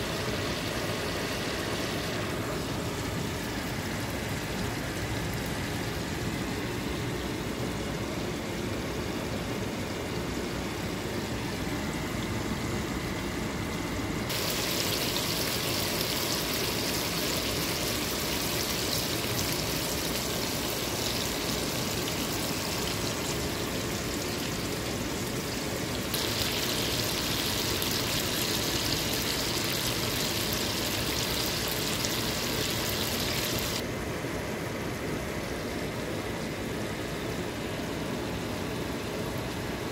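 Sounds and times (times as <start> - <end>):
fish frying in butter sizzling: 14.3 - 33.8.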